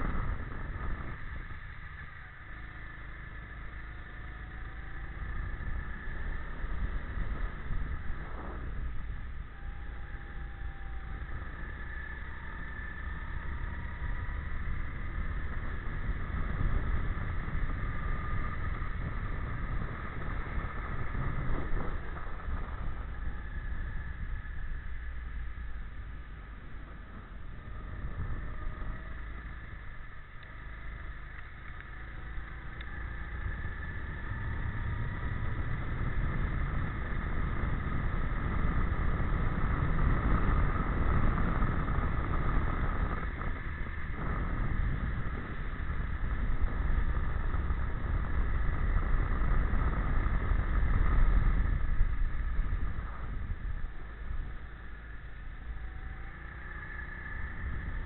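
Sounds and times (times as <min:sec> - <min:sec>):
go-kart engine at speed: 0:00.0 - 0:58.0
low rumble: 0:00.0 - 0:58.0.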